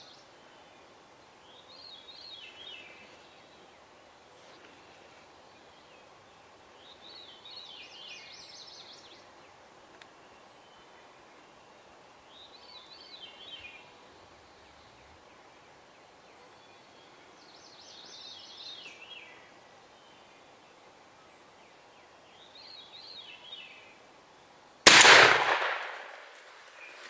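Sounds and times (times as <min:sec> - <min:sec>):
shotgun shot: 0:24.9 - 0:26.4.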